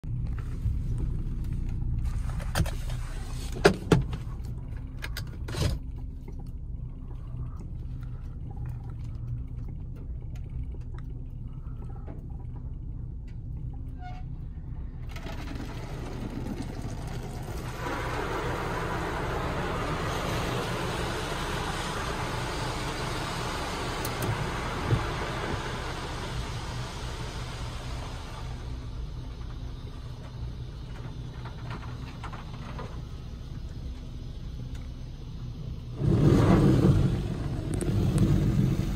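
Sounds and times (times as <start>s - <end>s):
car engine humming: 0.0s - 38.9s
water spray hissing on car: 15.4s - 38.9s.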